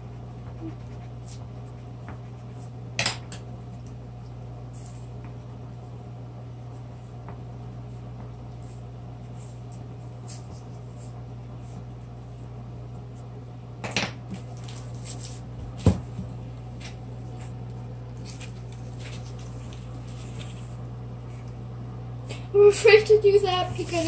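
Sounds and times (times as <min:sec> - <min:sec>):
pencil scratching on paper: 0:00.0 - 0:02.8
paper rustle: 0:14.4 - 0:15.4, 0:18.2 - 0:20.8, 0:23.5 - 0:24.0.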